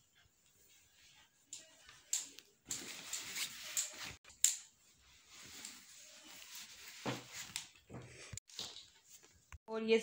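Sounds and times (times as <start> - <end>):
clothes rustling: 0.0 - 9.6.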